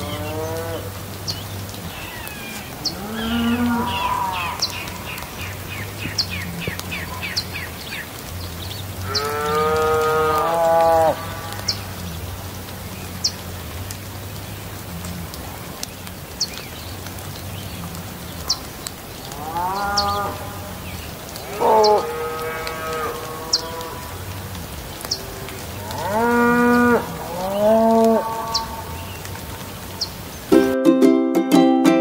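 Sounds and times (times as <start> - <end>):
steady rain hiss: 0.0 - 30.8
long drawn-out animal calls: 1.9 - 5.3.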